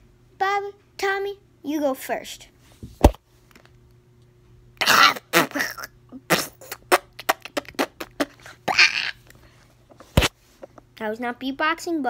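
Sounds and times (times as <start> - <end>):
boy beatboxing mouth noises: 4.8 - 9.2.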